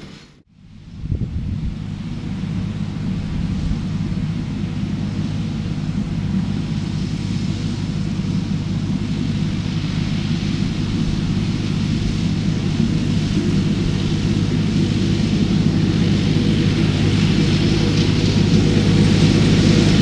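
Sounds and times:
tractor diesel engine drone: 0.0 - 20.0
mower hiss: 4.7 - 20.0.

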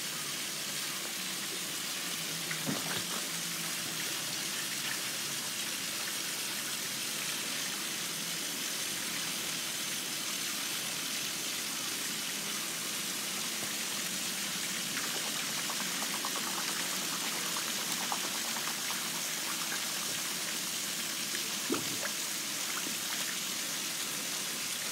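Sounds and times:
running water hissing: 0.0 - 8.0, 11.3 - 24.9
light splashes: 21.7 - 22.2.

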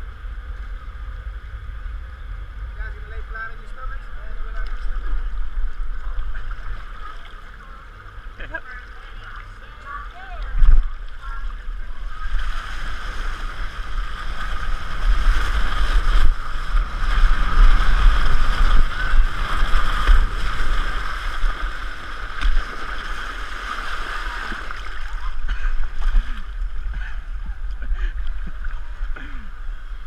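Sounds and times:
water rushing on slide: 0.0 - 29.1
wind buffeting microphone: 10.2 - 23.2.

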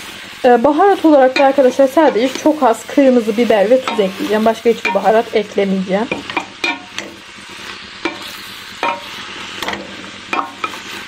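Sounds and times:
green beans sizzling in a pot: 0.0 - 11.0
wooden ladle scraping and knocking pot: 8.0 - 11.0.

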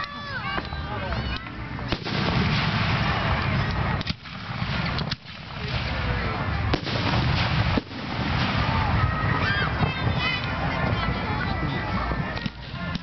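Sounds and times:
rushing crackling fireworks: 0.0 - 13.0
firework shell bursts: 1.9 - 9.0.

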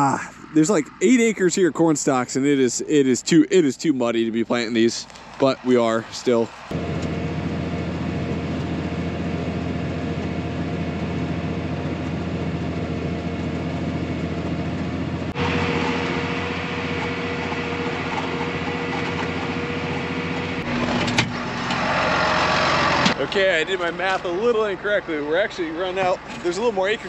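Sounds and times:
cab drone with whine: 5.0 - 27.0
tractor engine running under load: 6.6 - 27.0.

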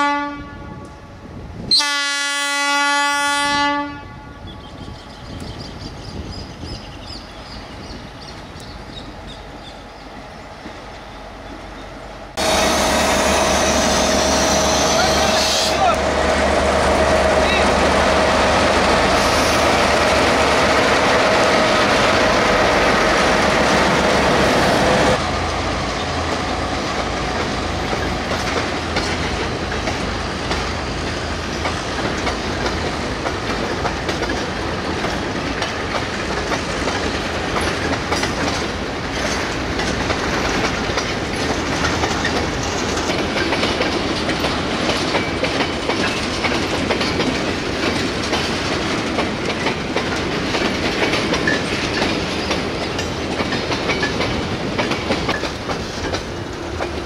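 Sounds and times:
diesel locomotives passing: 0.0 - 57.0
wheels clacking over rail joints: 13.3 - 57.0.

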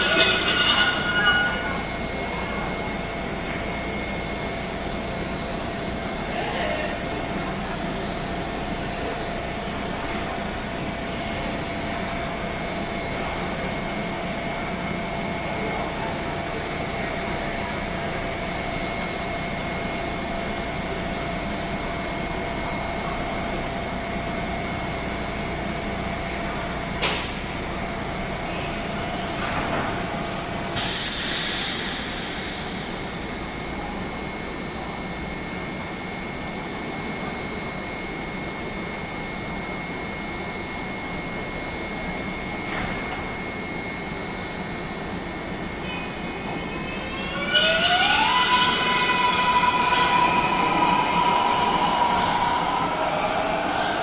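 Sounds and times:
train equipment humming: 0.0 - 6.2, 44.8 - 54.0
high steady whines: 0.0 - 54.0
loud air hiss: 30.8 - 33.4.

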